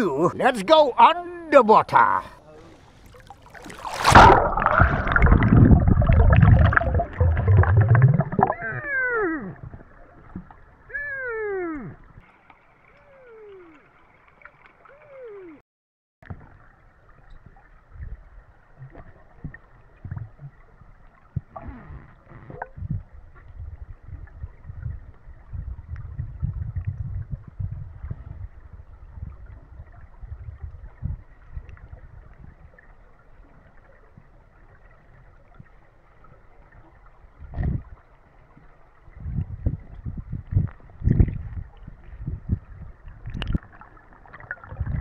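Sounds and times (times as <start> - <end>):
underwater rumble: 2.8 - 15.3, 16.2 - 45.0
water gushing: 3.0 - 10.2
dull knocks of moving water: 9.4 - 10.8, 16.2 - 45.0.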